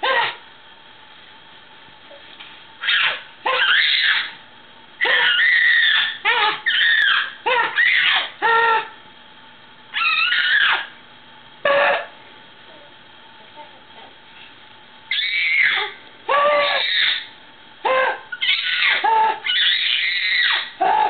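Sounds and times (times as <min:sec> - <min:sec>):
baby shrieking with laughter: 0:00.0 - 0:00.4, 0:02.8 - 0:04.4, 0:05.0 - 0:09.0, 0:10.0 - 0:10.9, 0:15.1 - 0:21.0.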